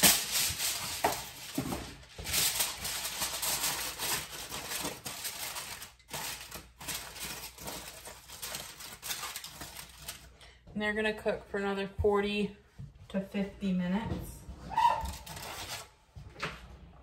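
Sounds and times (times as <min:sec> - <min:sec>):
aluminium foil crinkling: 0:00.0 - 0:10.6, 0:14.9 - 0:16.0.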